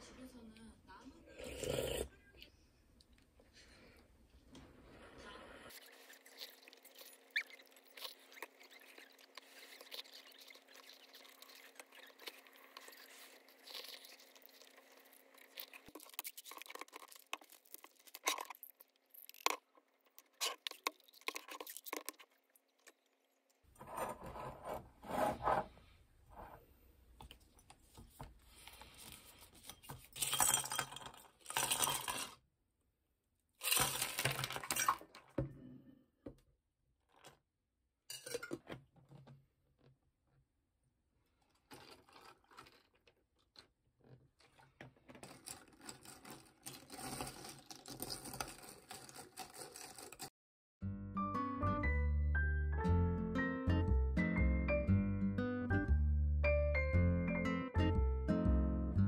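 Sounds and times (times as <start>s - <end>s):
tablets rattling in plastic bottle: 30.0s - 32.4s, 33.6s - 35.2s, 41.7s - 43.1s, 45.2s - 50.3s
ice cubes clinking in a glass: 30.1s - 32.4s.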